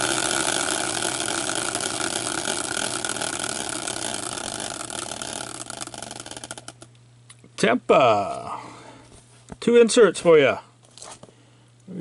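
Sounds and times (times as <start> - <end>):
prize wheel whirring and clicking: 0.0 - 6.9.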